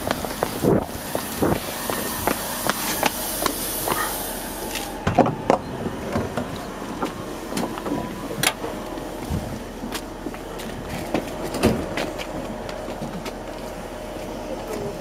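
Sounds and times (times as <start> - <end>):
wind rushing over microphone: 0.0 - 4.0, 9.2 - 9.9
hurried footsteps: 8.6 - 15.0.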